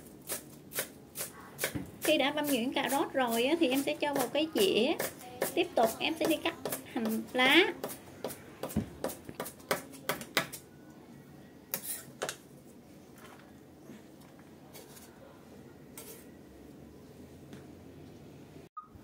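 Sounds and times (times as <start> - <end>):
knife chopping on wooden board: 5.0 - 5.6, 7.8 - 10.6.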